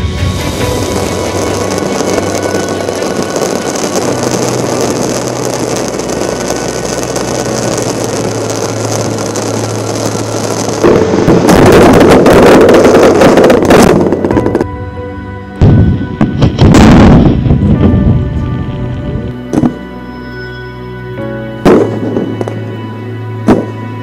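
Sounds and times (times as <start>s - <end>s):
fireworks crackling: 0.0s - 14.8s, 15.6s - 20.0s, 21.6s - 22.9s, 23.5s - 23.9s
fireworks rushing: 0.0s - 14.8s, 15.6s - 19.9s, 21.6s - 22.7s, 23.4s - 23.8s.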